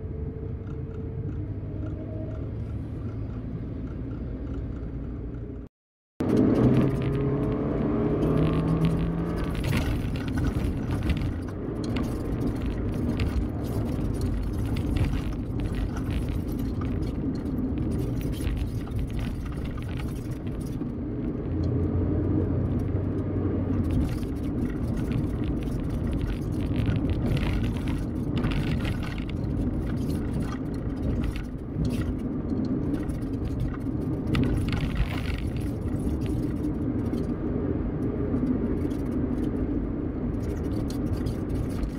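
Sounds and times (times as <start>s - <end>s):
vehicle engine and tyre rumble: 0.0s - 41.9s.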